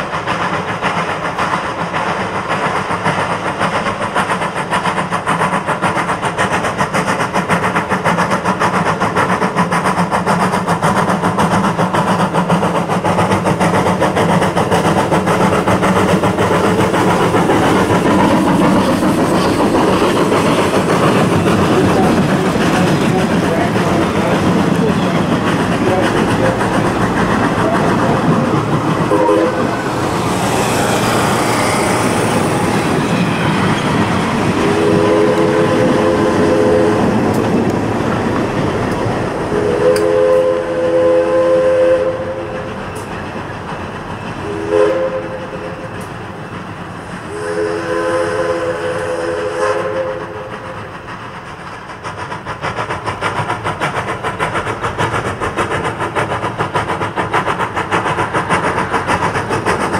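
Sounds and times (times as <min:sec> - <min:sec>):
steam exhaust beats: 0:00.0 - 0:59.9
train wheels clicking on rails: 0:00.0 - 0:59.9
steam locomotive chime whistle: 0:29.1 - 0:29.8, 0:34.6 - 0:37.0, 0:39.5 - 0:42.6, 0:44.4 - 0:46.1, 0:47.3 - 0:50.8.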